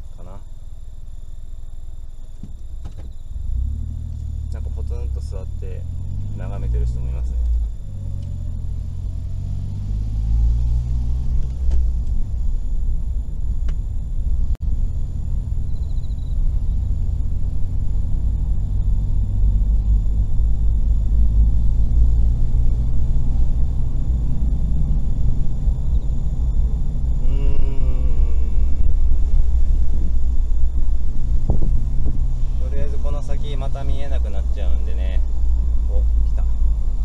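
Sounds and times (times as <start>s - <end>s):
car engine and tyres rumble: 0.0s - 37.0s.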